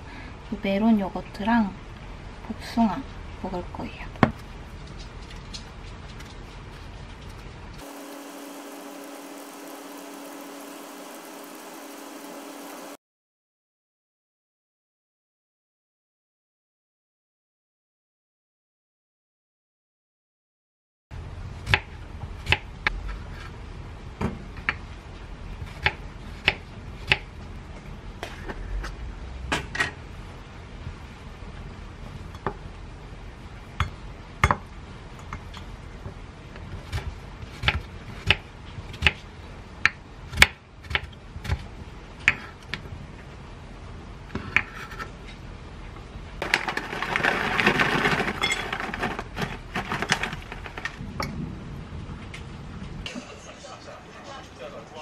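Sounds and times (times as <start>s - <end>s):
granola rattling into bowl: 46.4s - 51.0s.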